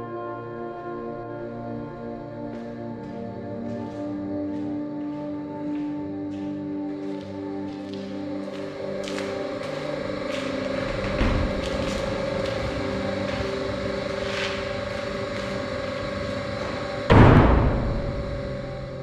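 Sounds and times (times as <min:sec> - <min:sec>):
steady droning hum: 0:00.0 - 0:19.0
heavy door slamming: 0:10.8 - 0:12.2, 0:16.1 - 0:19.0.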